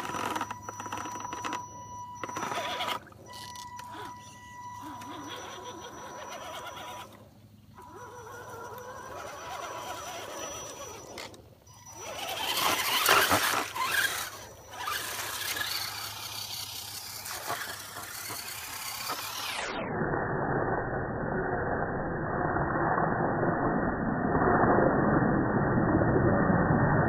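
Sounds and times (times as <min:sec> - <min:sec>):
electric motor whining: 0:00.0 - 0:19.7.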